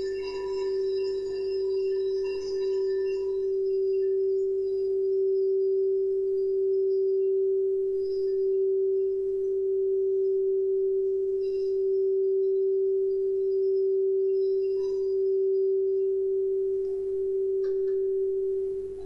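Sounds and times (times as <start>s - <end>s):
singing bowl steady tone: 0.0s - 19.0s.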